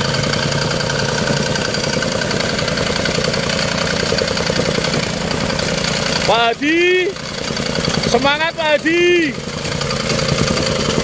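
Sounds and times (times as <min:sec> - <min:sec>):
rammer foot pounding soil: 0:00.0 - 0:11.0
tamping rammer engine buzzing: 0:00.0 - 0:11.0.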